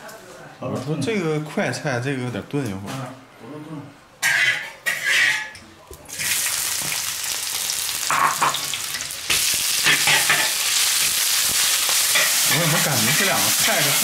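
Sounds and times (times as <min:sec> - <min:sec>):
harsh frying bursts: 0:06.1 - 0:14.0
potatoes sizzling in oil: 0:06.1 - 0:14.0.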